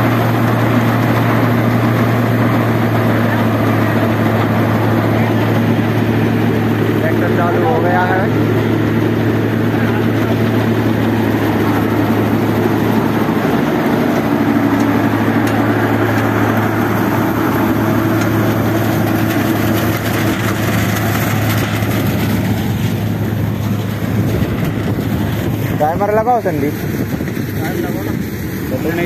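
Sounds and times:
tractor diesel engine running: 0.0s - 29.0s
machine clatter: 6.8s - 29.0s.

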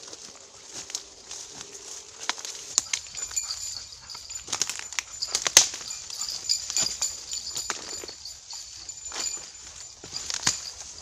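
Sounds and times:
footsteps crunching through leaves: 0.0s - 11.0s
twigs cracking: 0.1s - 11.0s.

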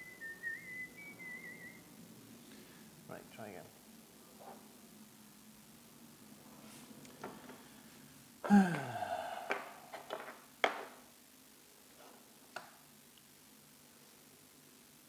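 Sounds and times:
man groaning: 8.4s - 9.8s.

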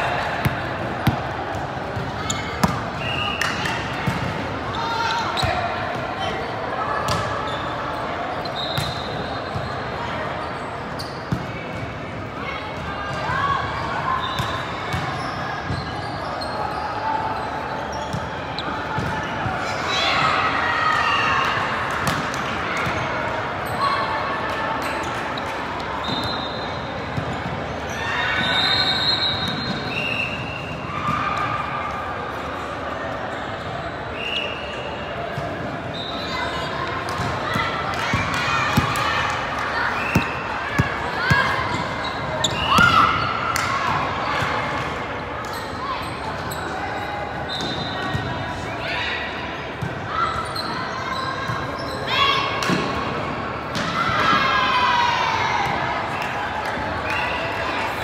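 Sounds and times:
volleyballs hit and bouncing: 0.0s - 4.6s, 7.0s - 7.4s, 21.4s - 23.2s, 36.9s - 45.0s, 52.5s - 54.6s
voices in sports hall: 0.0s - 58.0s
sneaker squeaks on court: 7.1s - 9.8s, 10.4s - 11.8s, 14.2s - 19.3s, 40.0s - 44.5s, 45.4s - 48.3s, 49.7s - 52.1s.

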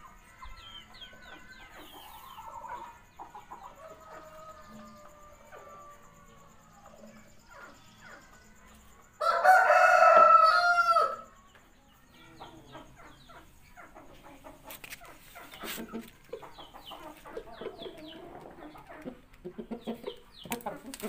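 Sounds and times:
chickens clucking: 0.0s - 21.0s
rooster crowing: 9.2s - 11.3s.

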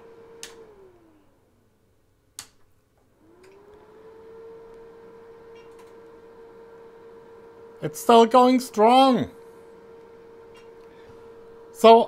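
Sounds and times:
cooling fan humming: 0.0s - 12.0s.

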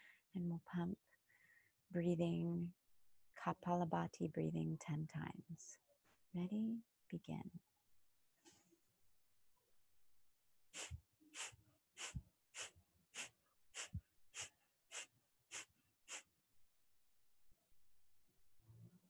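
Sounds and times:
sharp exhalations through the nose: 10.8s - 16.2s.

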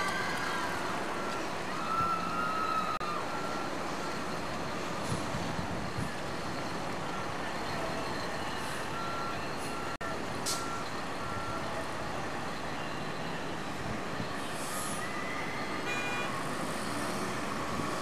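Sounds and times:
rumble of engines and traffic: 0.0s - 18.0s
truck reversing alarm beeping: 1.0s - 18.0s.

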